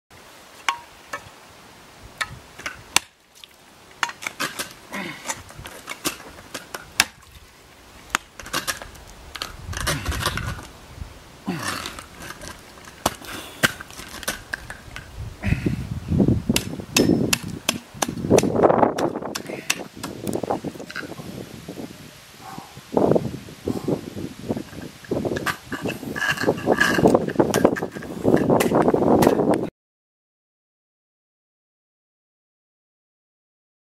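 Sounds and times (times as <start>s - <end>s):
ice axe striking ice: 2.2s - 3.2s, 4.0s - 7.3s, 11.6s - 14.8s, 16.5s - 20.3s
scraping on ice: 8.4s - 10.7s, 11.5s - 14.8s, 25.4s - 28.8s.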